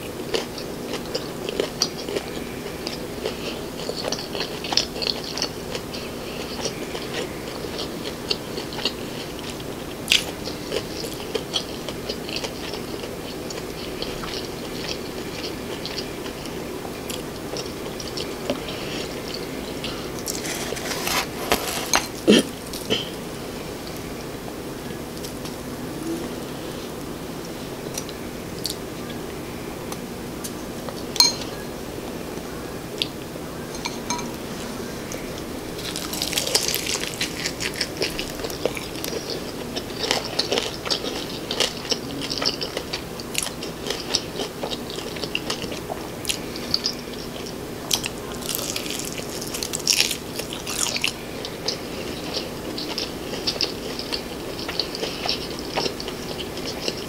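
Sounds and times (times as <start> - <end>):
crunchy chewing: 0.0 - 24.2, 34.3 - 57.0.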